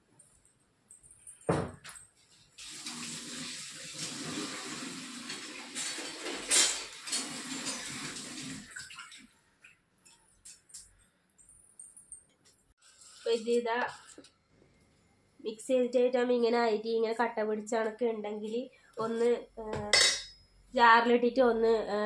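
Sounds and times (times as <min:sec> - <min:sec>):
water running from tap: 0:02.6 - 0:09.3.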